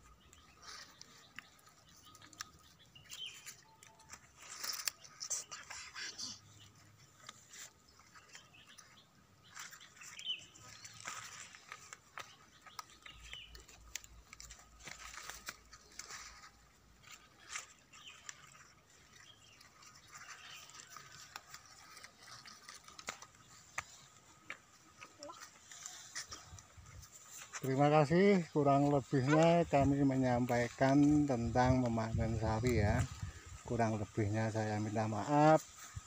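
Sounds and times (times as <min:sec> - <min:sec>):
leaves rustling and crackling: 0:00.0 - 0:36.0.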